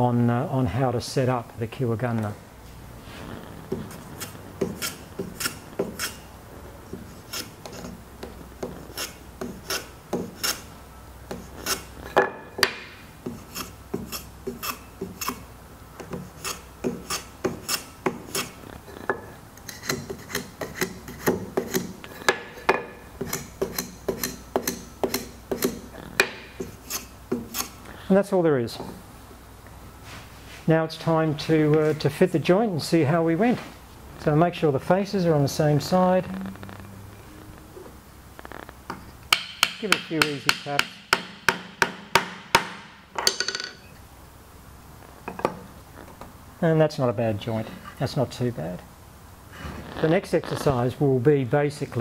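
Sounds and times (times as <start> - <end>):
hand plane shaving wood: 8.6 - 10.6.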